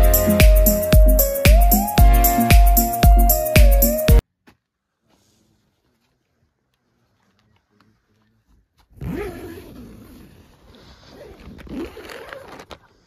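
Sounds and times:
tent zipper pulled open: 8.9s - 13.0s.

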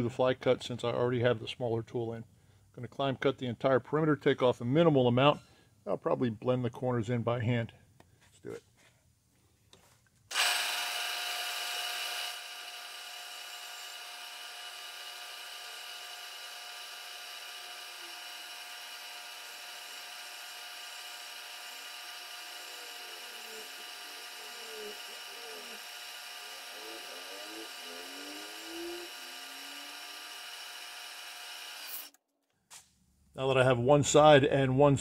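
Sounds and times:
milling machine spindle whine: 10.3s - 32.1s.

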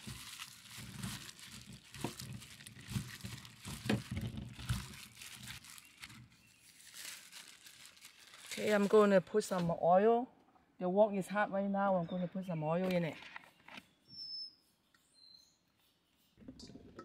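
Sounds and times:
plastic glove crinkling: 0.0s - 9.8s.

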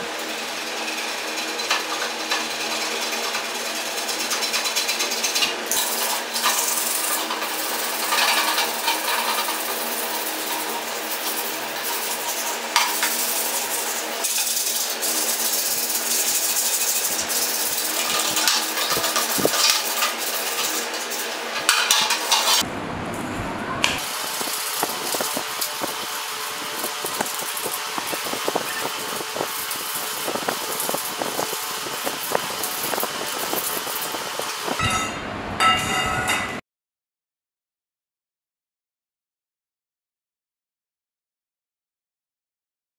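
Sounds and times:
sandpaper scratching on metal: 0.0s - 22.6s, 24.1s - 34.8s.

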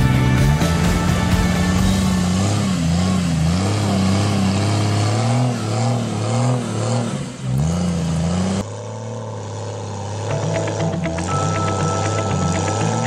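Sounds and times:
engine revving: 0.0s - 13.0s.

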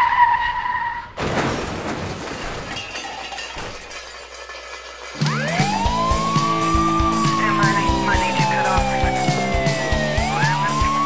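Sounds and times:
car crash: 0.4s - 6.4s
glass shattering: 1.2s - 5.6s
rising siren wail: 5.2s - 11.0s.

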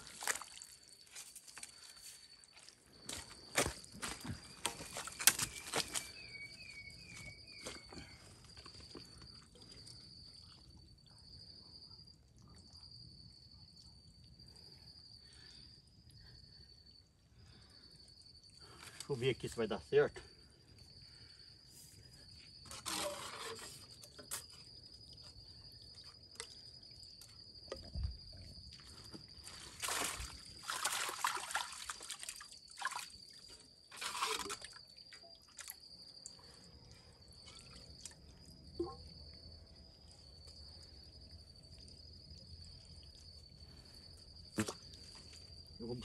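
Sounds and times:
muddy water sloshing and splashing: 0.0s - 10.6s, 28.1s - 36.4s
high insect trill: 0.0s - 46.0s.

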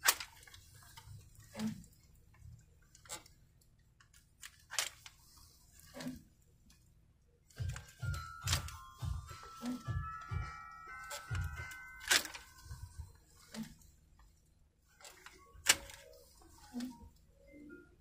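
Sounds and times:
fabric rustling: 7.5s - 17.4s
music with steady beat: 7.6s - 13.0s.

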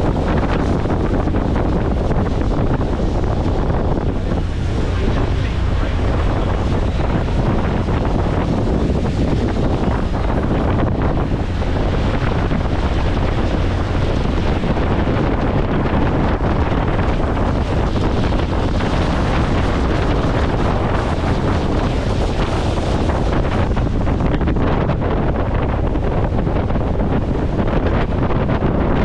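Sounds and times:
motorboat running noise: 0.0s - 29.0s
wind buffeting microphone: 0.0s - 29.0s.

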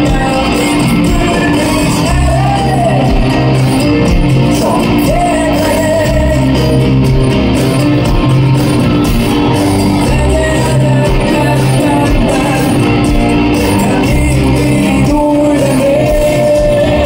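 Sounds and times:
man singing: 0.0s - 7.2s, 9.8s - 17.0s
drums: 0.0s - 17.0s
electric guitars: 0.0s - 17.0s.

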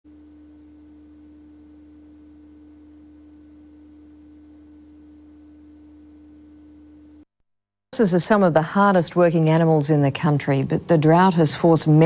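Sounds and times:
low hum: 0.1s - 7.3s.

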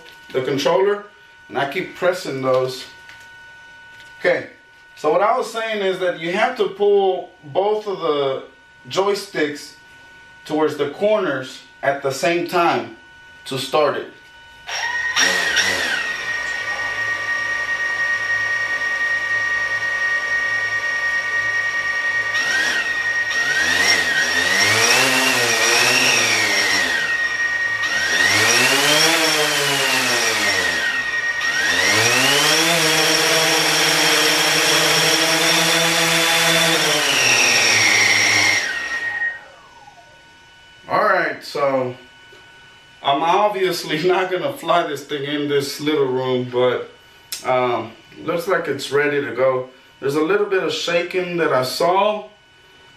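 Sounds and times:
drone motors and propellers whining: 14.6s - 40.9s.

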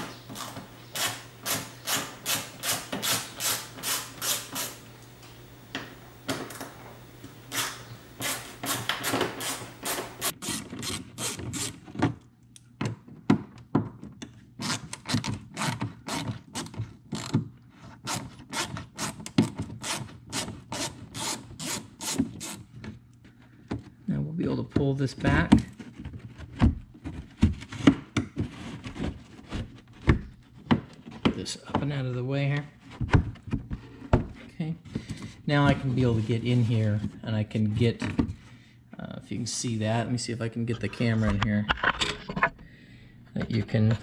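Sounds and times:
hand ratchet clicking: 0.0s - 5.1s, 7.5s - 11.7s.

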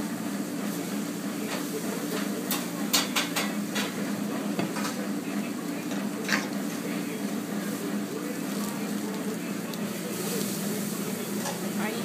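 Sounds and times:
dish and cutlery clatter: 1.5s - 4.0s, 5.9s - 6.5s.

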